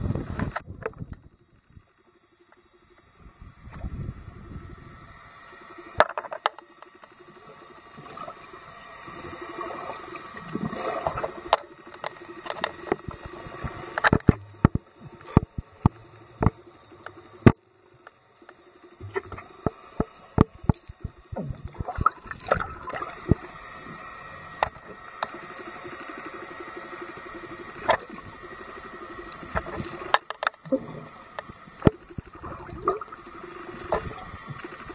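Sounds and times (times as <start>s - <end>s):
underwater gurgling water: 0.0s - 34.9s
sharp clicks and pops: 11.5s - 23.5s, 24.5s - 25.4s, 29.3s - 33.1s.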